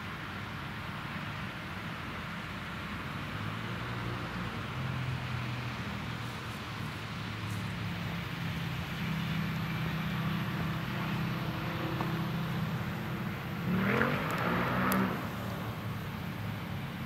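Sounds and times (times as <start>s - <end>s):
road vehicle accelerating: 2.4s - 17.0s
combine harvester drone: 5.8s - 17.0s.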